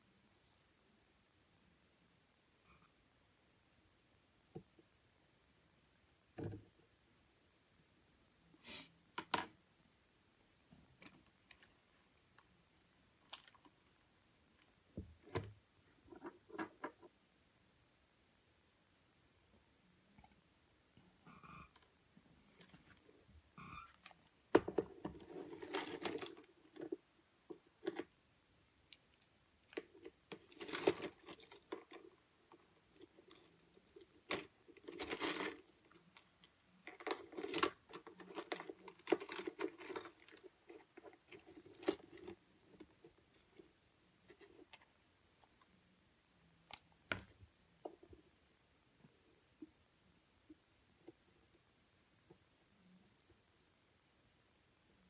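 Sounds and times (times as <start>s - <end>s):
small tools clicking and rattling: 24.0s - 27.0s, 28.9s - 42.4s.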